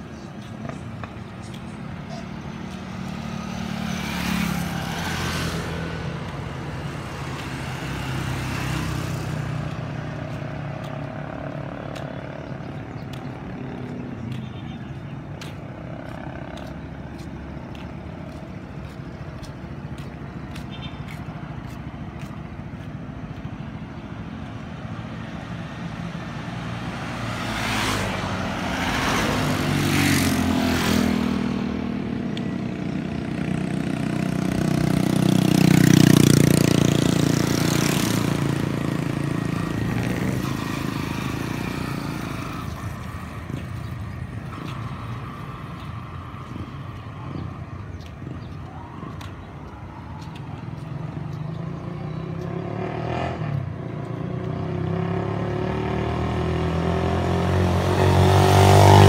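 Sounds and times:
vehicles driving past: 0.0 - 59.0
loud engine passing close: 24.8 - 48.4, 50.8 - 59.0.

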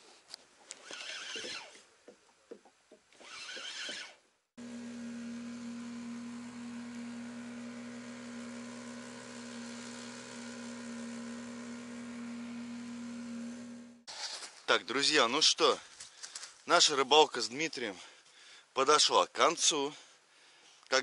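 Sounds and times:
steady motor hum: 4.6 - 14.0.

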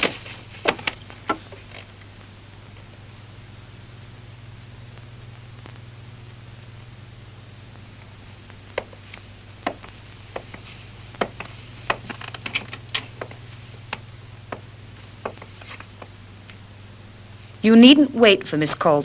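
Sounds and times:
steady low hum: 0.0 - 19.0
sharp light knocks and clicks: 9.6 - 16.1.

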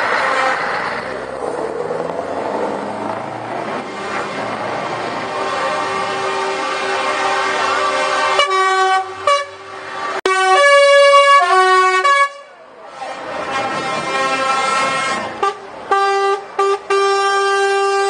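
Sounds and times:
lorries passing: 0.0 - 18.0
air horns blasting: 3.8 - 18.0.

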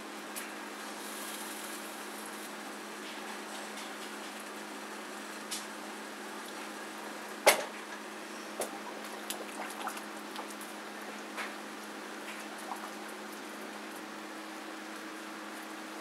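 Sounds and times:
steady low hum: 0.0 - 16.0
water sloshing: 8.6 - 11.6, 12.2 - 13.2.

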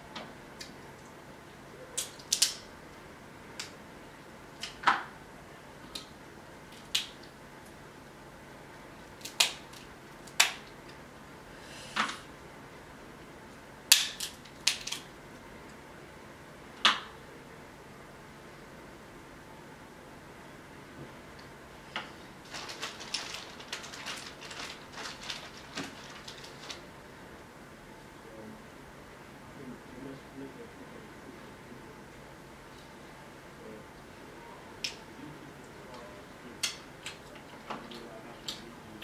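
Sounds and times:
crab shells cracking: 2.0 - 2.6, 9.1 - 10.8, 13.9 - 15.1.

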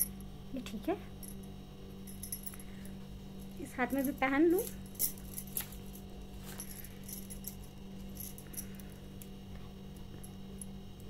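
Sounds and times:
steady low hum: 0.0 - 11.0
glass bangles clinking: 1.1 - 9.2.

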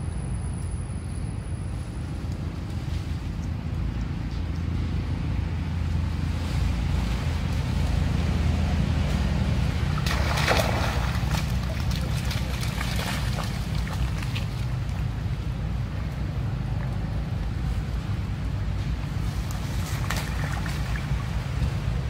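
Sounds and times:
wind rumble on microphone: 0.0 - 22.0
splashing through muddy puddle: 6.1 - 22.0.

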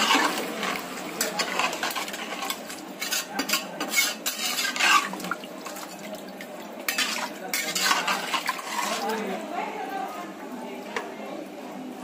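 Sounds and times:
spatula scraping metal pot: 0.0 - 5.9, 6.9 - 9.2
liquid sloshing in pot: 0.0 - 9.4.

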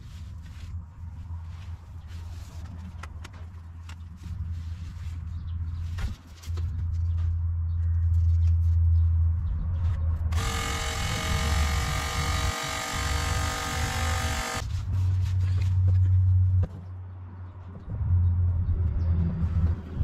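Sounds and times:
buzzing whine with overtones: 10.3 - 14.6.

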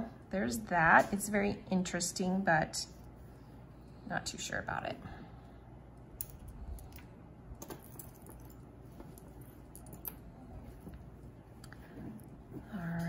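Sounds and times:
metal chain necklace clicking: 6.2 - 7.0, 7.6 - 10.3.

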